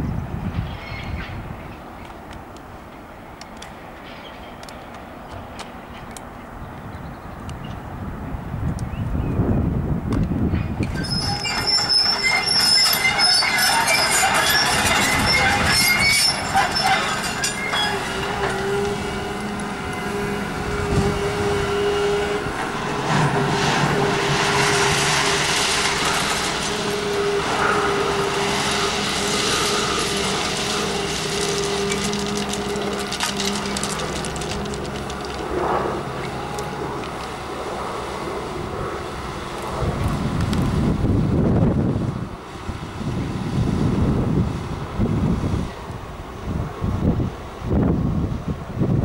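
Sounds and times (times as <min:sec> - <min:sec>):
excavator diesel engine and hydraulics: 0:00.0 - 0:49.0
high metallic squealing: 0:10.8 - 0:37.0
steady whine: 0:10.9 - 0:46.8.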